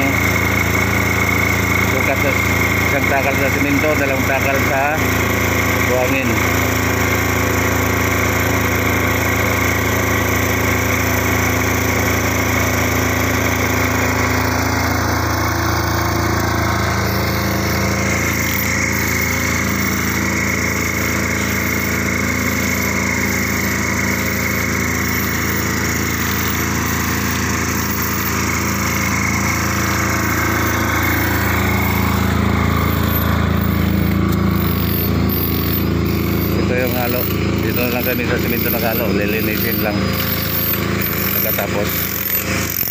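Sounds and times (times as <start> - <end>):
petrol generator running: 0.0 - 42.9
thin high whine: 13.6 - 42.9.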